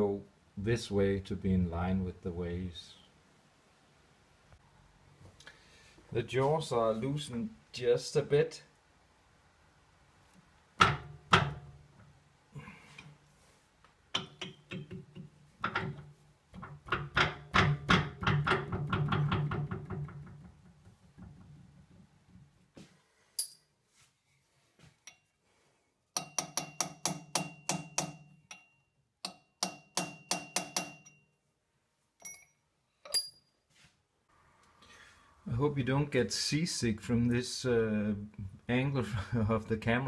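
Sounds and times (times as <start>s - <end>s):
hammer tapping metal: 14.1s - 16.0s, 26.2s - 31.3s.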